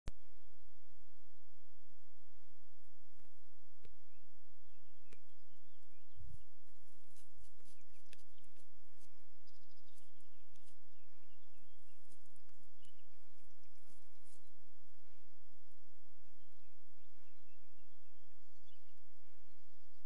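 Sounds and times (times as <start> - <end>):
faint bird chirps: 3.8 - 15.3, 16.1 - 20.0
light clicks: 7.1 - 10.8.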